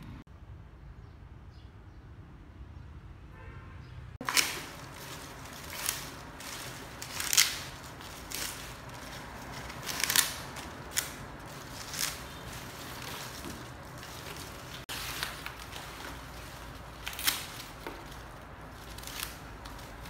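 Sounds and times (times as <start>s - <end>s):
dry leaves crackling and rustling: 4.2s - 20.0s.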